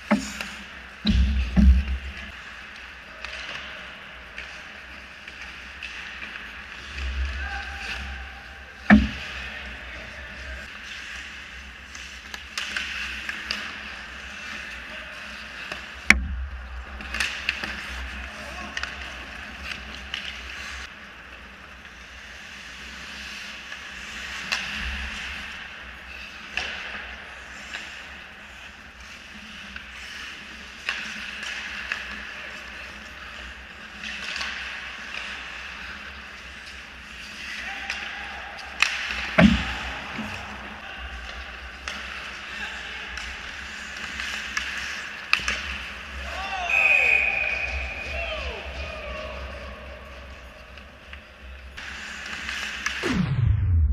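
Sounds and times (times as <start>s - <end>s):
clicks of sticks and puck: 0.0s - 8.1s, 10.6s - 53.0s
skate blades scraping ice: 2.2s - 16.0s, 16.8s - 53.0s.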